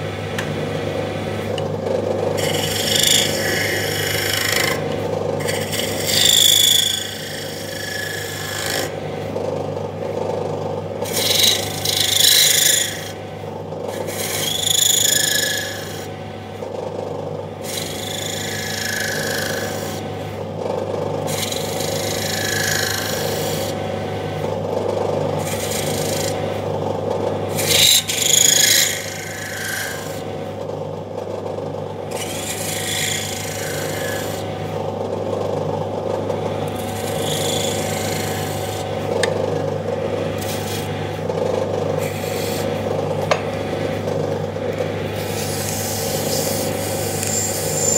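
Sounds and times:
lathe humming: 0.0s - 47.9s
scraper blade rasping on workpiece: 2.3s - 9.0s, 11.0s - 13.2s, 13.9s - 16.1s, 17.6s - 20.1s, 21.2s - 23.8s, 25.4s - 26.6s, 27.5s - 30.3s, 32.1s - 34.6s, 36.4s - 42.8s, 45.1s - 47.9s.

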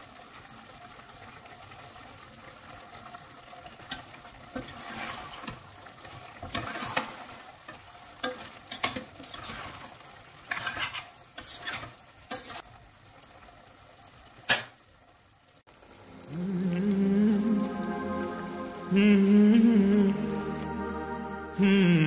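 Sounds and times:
metal spoon scraping steel pot: 10.5s - 12.6s
music: 16.0s - 22.0s.

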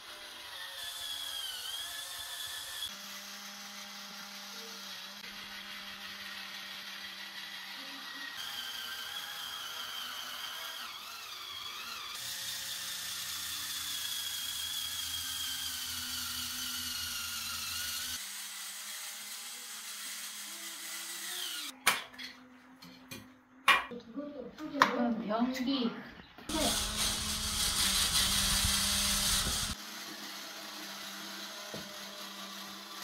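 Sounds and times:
electric scrubber motor whining: 0.0s - 18.3s, 26.5s - 33.0s.

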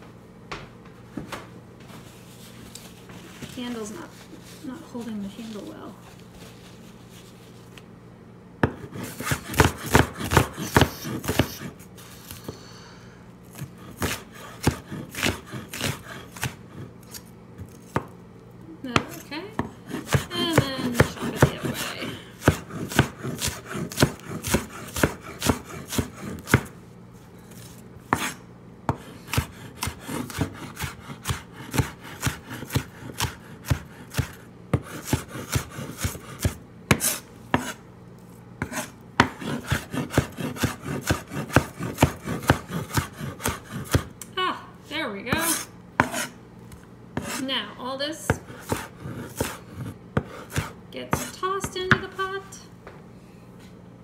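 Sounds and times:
knife chopping on wooden board: 8.6s - 12.5s, 13.5s - 18.2s, 18.9s - 26.8s, 27.6s - 37.8s, 38.6s - 44.1s, 45.3s - 47.4s, 48.3s - 52.2s.

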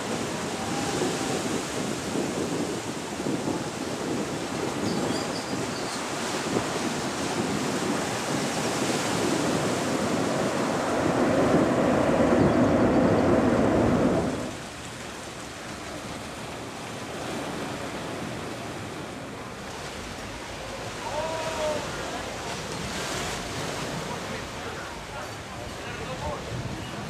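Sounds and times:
surf: 0.0s - 27.0s
wind: 0.0s - 27.0s
jet engines roaring: 9.4s - 14.6s.

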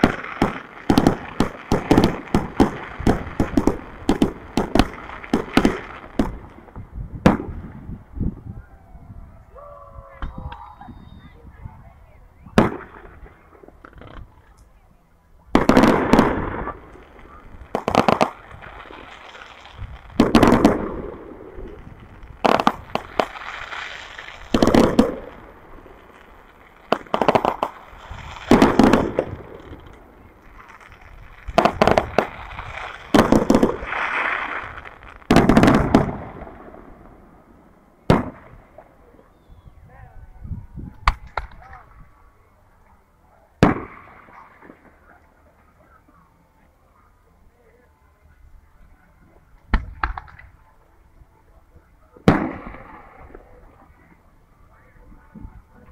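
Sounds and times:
fireworks bursting with echo: 0.0s - 8.4s, 12.4s - 14.6s, 15.5s - 39.7s, 43.6s - 46.3s, 49.7s - 50.6s, 52.0s - 55.9s.

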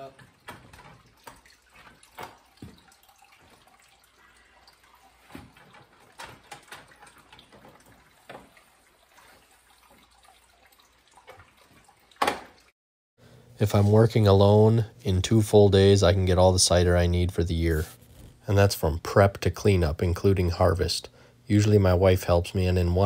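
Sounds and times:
faint dripping juice: 0.0s - 12.2s.

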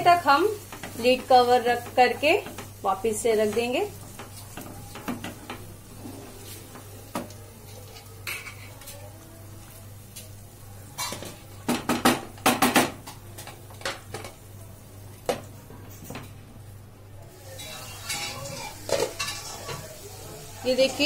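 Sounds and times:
wooden spatula scraping a pan: 0.7s - 6.9s.

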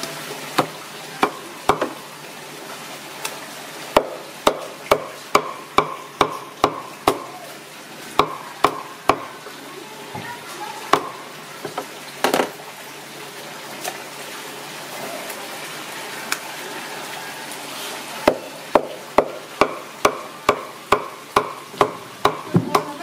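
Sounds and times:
meat frying in oil: 0.0s - 23.0s
cleaver chopping on wooden board: 0.6s - 2.0s, 4.0s - 7.3s, 8.2s - 9.3s, 18.3s - 22.9s.

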